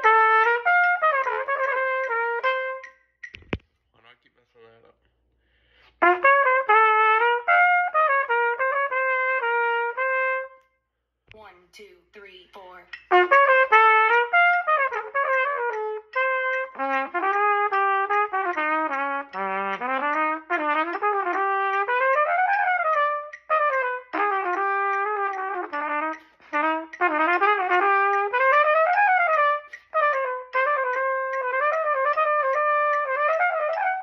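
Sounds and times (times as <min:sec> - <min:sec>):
trumpet playing fast runs: 0:00.0 - 0:02.9, 0:05.9 - 0:10.6, 0:13.0 - 0:34.0
player breathing: 0:05.0 - 0:06.0.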